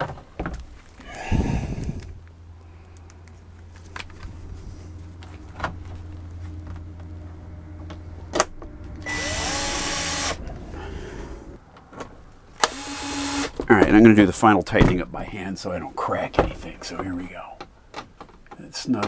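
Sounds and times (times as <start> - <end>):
low hum: 0.6 - 12.9
drill motor whirring: 9.0 - 10.6, 12.6 - 13.6.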